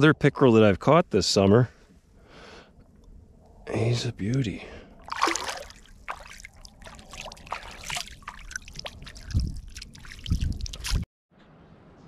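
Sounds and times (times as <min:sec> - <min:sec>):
water splashing and dripping: 0:05.0 - 0:11.1.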